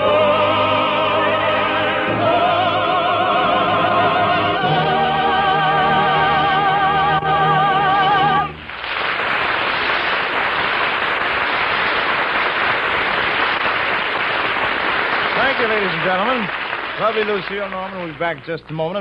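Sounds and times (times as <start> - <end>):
person singing with vibrato: 0.0 - 8.6
audience applause: 8.6 - 18.4.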